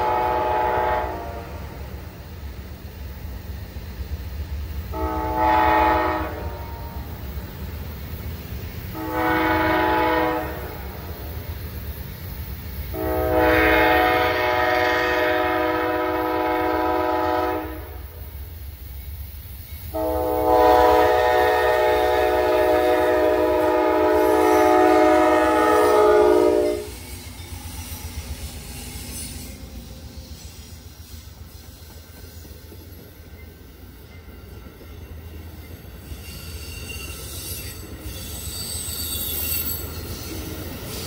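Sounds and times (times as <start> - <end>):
locomotive air horn: 0.0 - 1.8, 4.9 - 7.1, 8.9 - 11.1, 12.9 - 18.2, 19.9 - 27.0
passing train rumble: 0.0 - 41.0.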